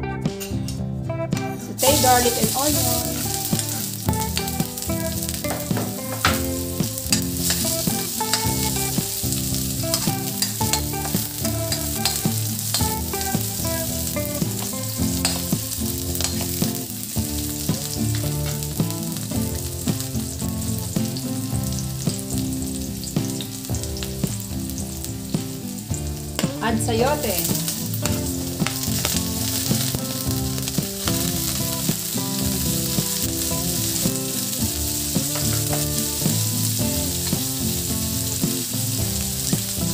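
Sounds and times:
garlic and onion sizzling in oil: 1.6 - 39.9
spatula stirring in wok: 1.8 - 22.8.

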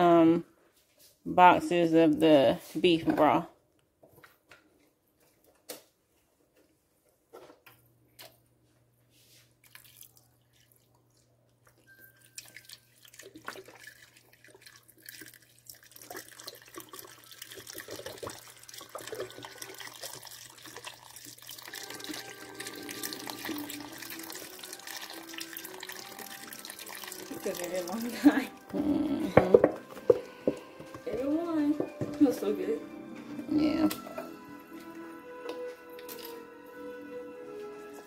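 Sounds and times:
broth pouring into a pot: 9.6 - 10.9, 11.9 - 28.6.

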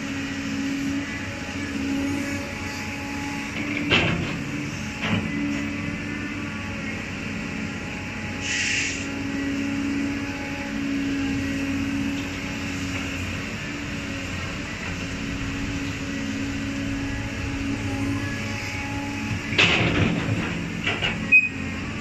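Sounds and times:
excavator diesel engine running: 0.0 - 22.0
short hiss: 8.4 - 9.0.

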